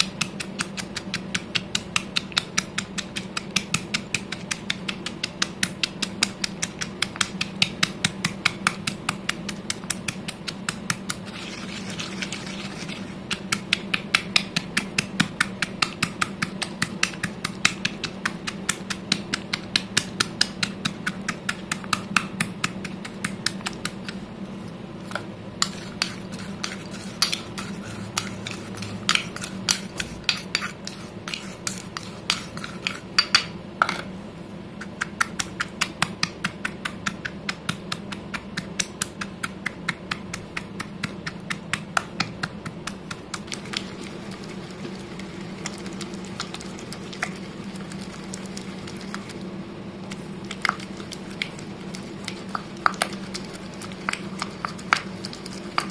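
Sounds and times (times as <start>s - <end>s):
stone pestle pounding in mortar: 0.0s - 11.6s, 12.5s - 24.2s, 25.6s - 34.0s, 34.8s - 43.8s.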